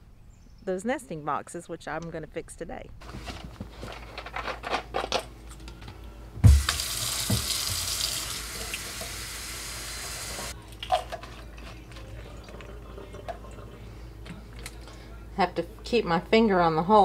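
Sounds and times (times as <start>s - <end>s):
faucet water into metal sink: 6.4s - 10.5s.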